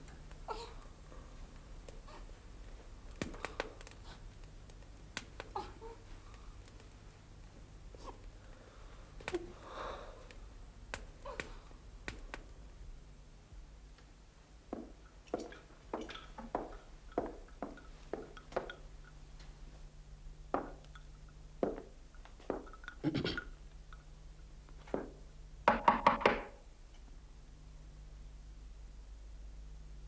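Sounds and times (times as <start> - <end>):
footsteps on hard floor: 21.6 - 22.7.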